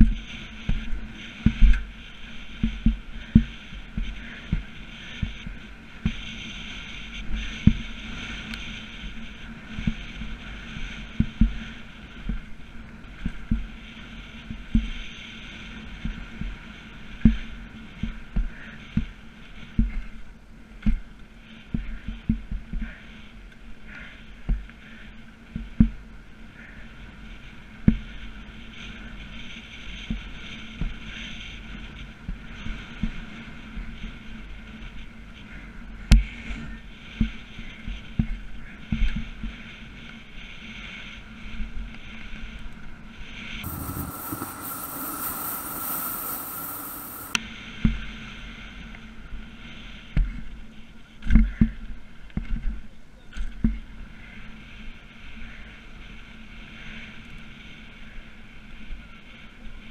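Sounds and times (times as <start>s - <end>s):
mountain bike rattling: 43.6s - 47.4s
steady rolling noise: 43.6s - 47.4s.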